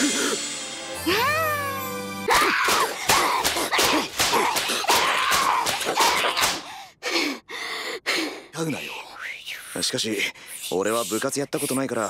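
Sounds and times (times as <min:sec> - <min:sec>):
high voice crying out: 0:01.1 - 0:02.8.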